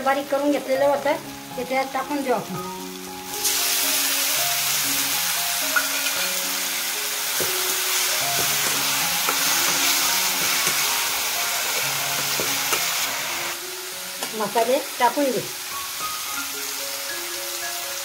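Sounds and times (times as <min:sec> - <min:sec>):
background music with held notes: 0:00.0 - 0:18.0
food sizzling in hot oil: 0:00.0 - 0:18.0
metal spatula scraping pan: 0:05.7 - 0:06.4.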